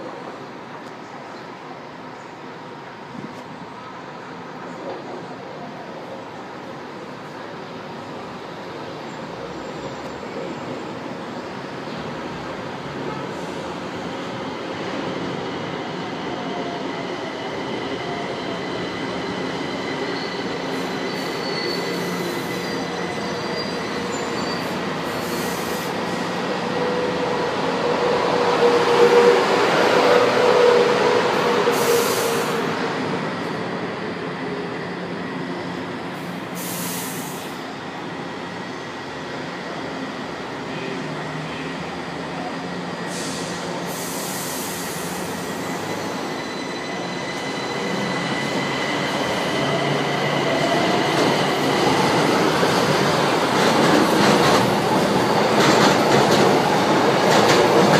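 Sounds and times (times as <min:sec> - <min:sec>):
train braking to a stop: 0:08.6 - 0:57.9
short hisses: 0:36.4 - 0:37.6.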